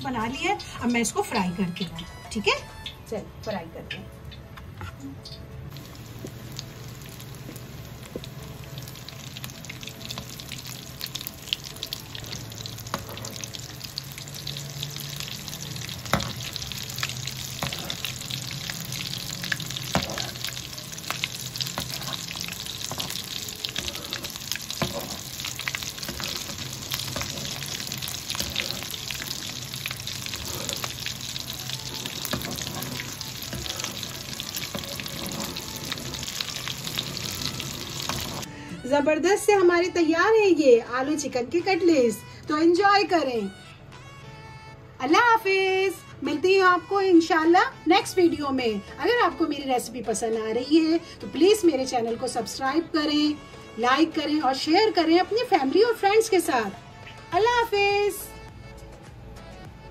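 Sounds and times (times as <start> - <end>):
food deep-frying in oil: 5.2 - 38.5.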